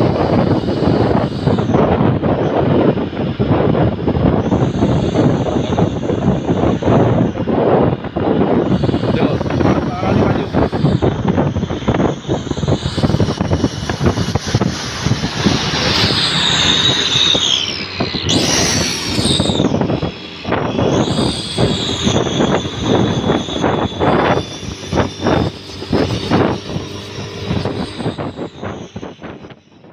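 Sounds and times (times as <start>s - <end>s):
engine pulsing exhaust note: 0.0s - 29.9s
exhaust whistle: 8.4s - 29.9s.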